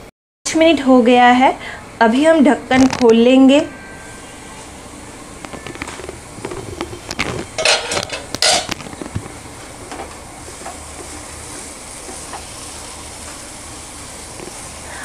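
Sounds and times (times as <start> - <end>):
food sizzling in a pan: 10.3 - 15.0.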